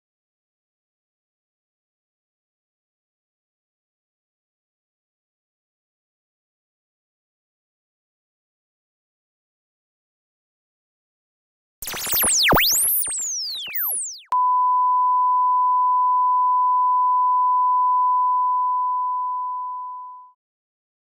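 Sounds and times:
steady television test tone: 11.8 - 14.4
swooping electronic tones: 11.8 - 14.4.

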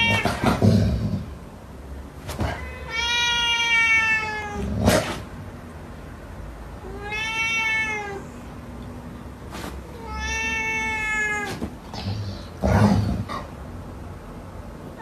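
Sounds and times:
cat meowing: 0.0 - 0.6, 2.4 - 4.7, 6.8 - 8.4, 9.9 - 11.8.

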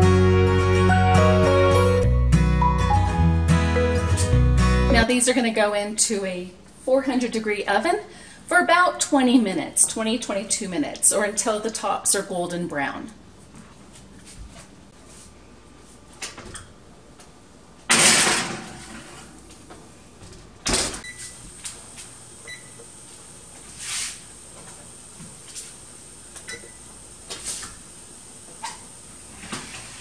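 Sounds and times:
oven door opening rush: 17.9 - 19.4.

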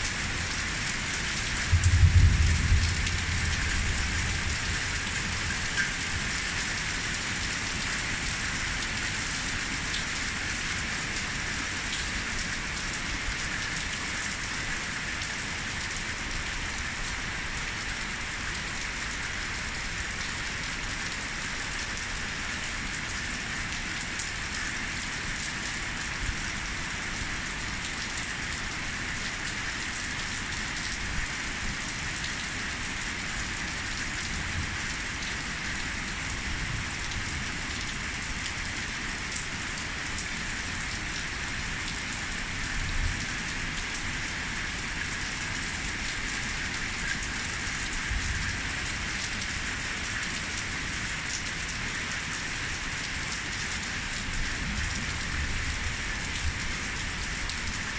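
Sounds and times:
heavy rain hissing: 0.0 - 44.9.

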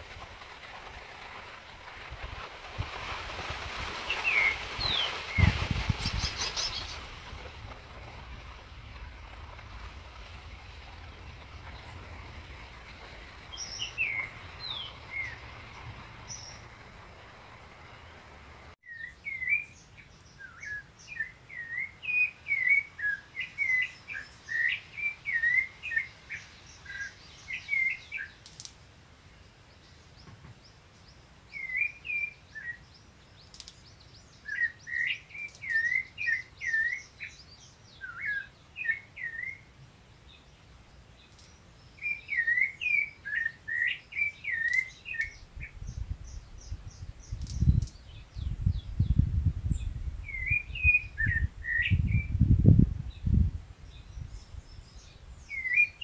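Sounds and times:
thrush singing whistled notes: 4.0 - 28.4, 31.5 - 33.0, 33.9 - 39.7, 41.8 - 52.5, 53.9 - 56.0
low rumble: 5.4 - 18.8.

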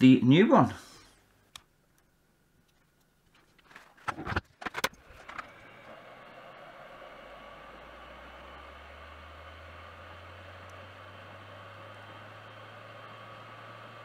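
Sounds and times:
low hum: 4.7 - 14.0.

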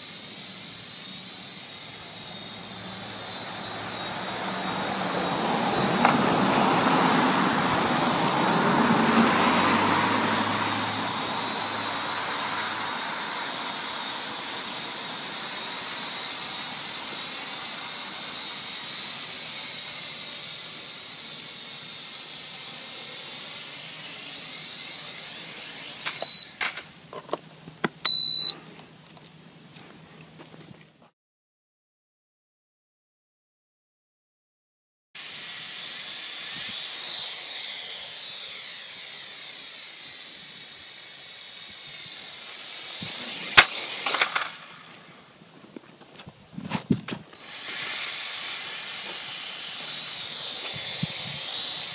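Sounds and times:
quadcopter motors whining: 0.0 - 26.9, 27.9 - 28.5, 35.2 - 46.2, 47.2 - 51.9
short high beep: 26.2 - 26.5, 28.1 - 28.6.

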